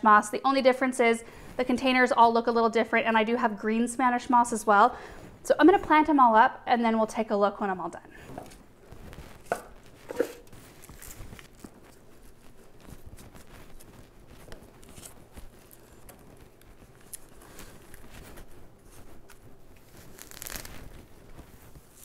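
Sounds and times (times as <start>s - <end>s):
potting soil rustling under hands: 8.4s - 22.0s.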